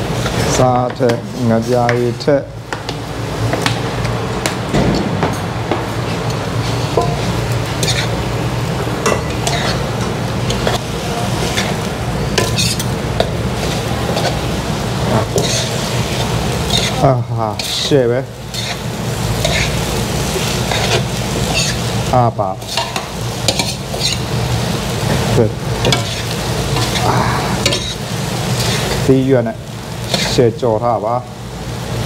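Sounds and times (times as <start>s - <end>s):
noodles sizzling in a wok: 5.8s - 32.0s
utensils scraping a pan: 6.2s - 8.2s, 9.1s - 11.8s, 12.4s - 12.9s, 15.0s - 21.9s, 22.6s - 24.3s, 25.8s - 28.0s, 28.6s - 29.0s, 30.0s - 30.4s.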